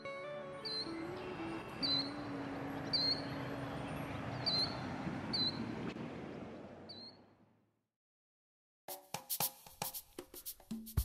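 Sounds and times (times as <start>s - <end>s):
bird chirping: 0.6s - 7.3s.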